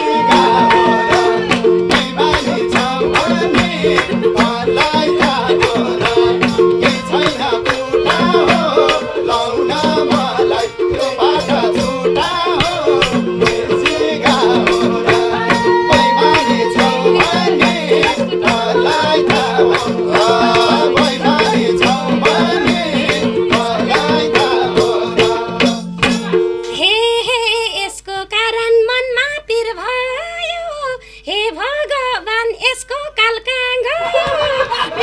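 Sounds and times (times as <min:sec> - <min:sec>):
man singing: 0:00.0 - 0:26.1
bowed string instrument: 0:00.0 - 0:26.7
hand drums beating: 0:00.0 - 0:26.8
harmonium drone: 0:00.0 - 0:26.8
people talking and laughing: 0:15.3 - 0:20.0, 0:33.8 - 0:35.0.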